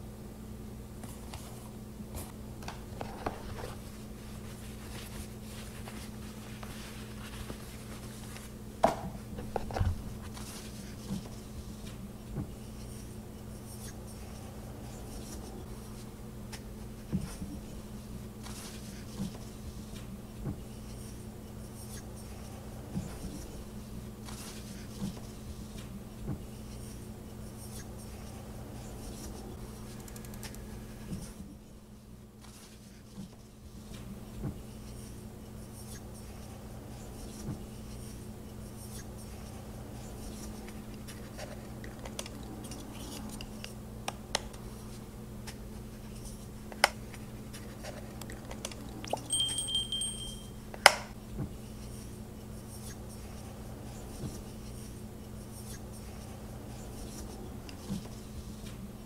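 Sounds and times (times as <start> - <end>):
tissue paper rustling: 3.4 - 8.5
low hum: 48.6 - 52.5.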